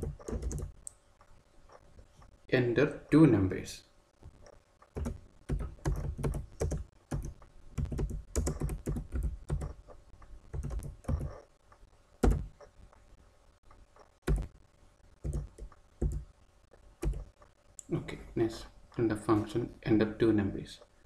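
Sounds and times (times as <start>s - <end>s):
typing on a keyboard: 0.0s - 0.7s, 4.9s - 9.9s, 10.5s - 11.4s, 15.2s - 16.2s, 17.0s - 17.3s.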